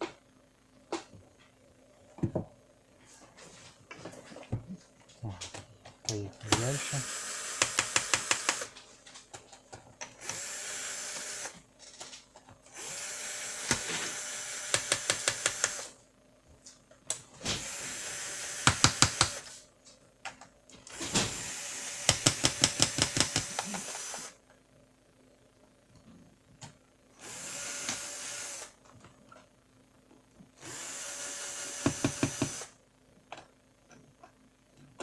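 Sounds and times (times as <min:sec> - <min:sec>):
electric screwdriver whirring: 0:06.5 - 0:08.8, 0:10.2 - 0:11.6, 0:12.7 - 0:15.9, 0:17.6 - 0:19.5, 0:20.9 - 0:24.4, 0:27.2 - 0:28.8, 0:30.6 - 0:32.8.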